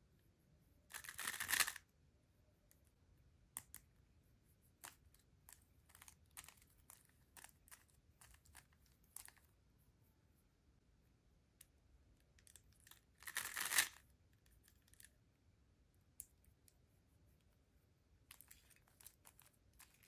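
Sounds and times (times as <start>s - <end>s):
puzzle cube turning clicks: 0.9s - 1.8s, 13.2s - 14.0s.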